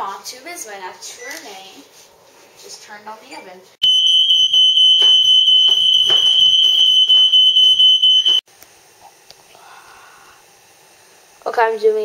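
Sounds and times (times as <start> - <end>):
smoke alarm high-pitched tone: 3.8 - 8.4.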